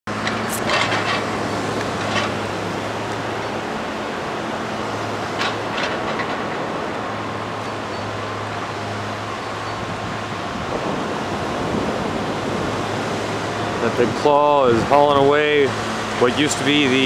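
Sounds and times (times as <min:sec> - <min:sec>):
sharp knocks and clatters: 0:00.1 - 0:02.5, 0:05.2 - 0:06.7
machine engine droning: 0:00.1 - 0:17.0.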